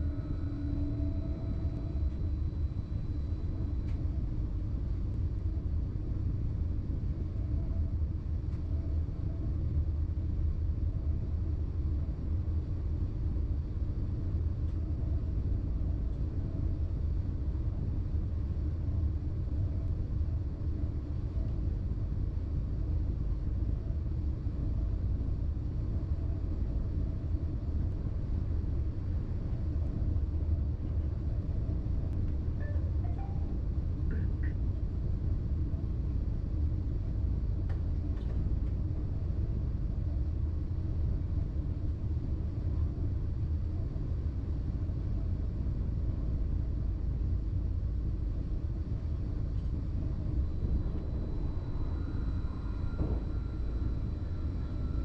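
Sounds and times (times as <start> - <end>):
train low rumble: 0.0 - 55.0
thin high tone: 32.6 - 33.6.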